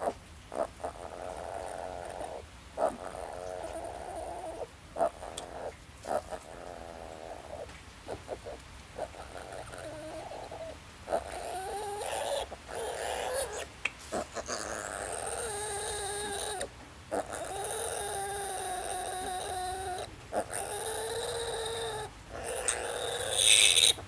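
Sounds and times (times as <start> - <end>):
piglet squealing: 9.0 - 24.0.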